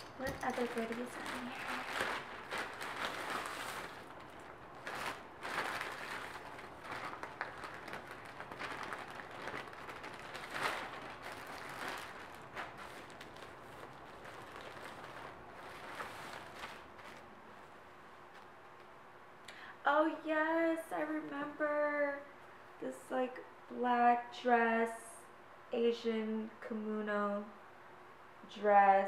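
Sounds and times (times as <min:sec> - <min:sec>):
plastic bags rustling and crinkling: 0:00.0 - 0:17.8.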